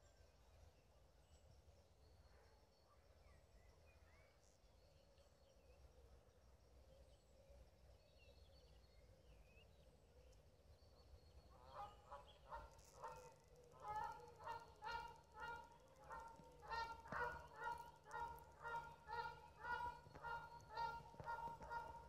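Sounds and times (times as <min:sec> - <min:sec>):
geese honking: 0:11.7 - 0:22.0.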